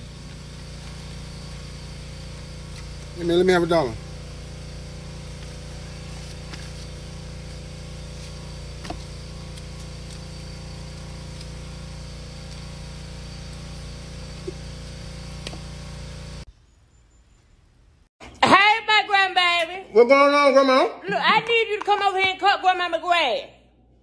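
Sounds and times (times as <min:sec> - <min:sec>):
car engine idling: 0:00.0 - 0:16.5.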